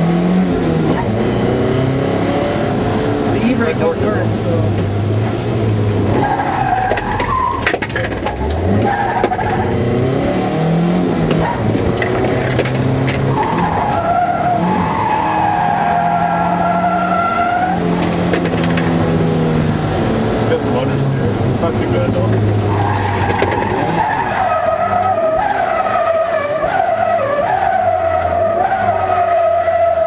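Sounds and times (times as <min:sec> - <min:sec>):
car engine running hard: 0:00.0 - 0:30.0
tyres squealing: 0:06.1 - 0:09.8, 0:11.3 - 0:18.6.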